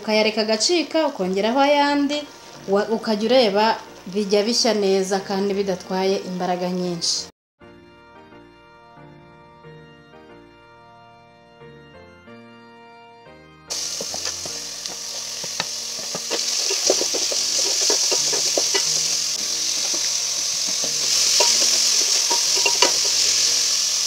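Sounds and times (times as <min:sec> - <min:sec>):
vegetables sizzling in hot oil: 0:01.1 - 0:04.2, 0:13.7 - 0:24.0
organ-like music: 0:01.6 - 0:05.0, 0:07.6 - 0:24.0
wooden spoon scraping a pot: 0:13.7 - 0:23.9.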